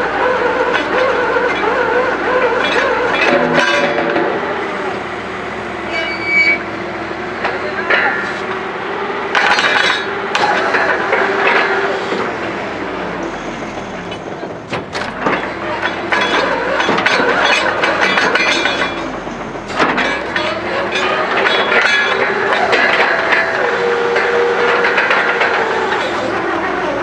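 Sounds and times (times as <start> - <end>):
drilling rig engine din: 0.0 - 27.0
metallic knocks and clanks: 0.6 - 4.5, 9.3 - 12.3, 13.8 - 27.0.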